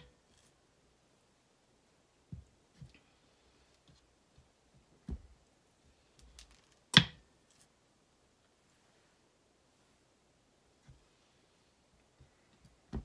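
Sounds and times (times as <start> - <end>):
soft low thuds of soap loaf: 4.3 - 5.4, 12.2 - 13.0.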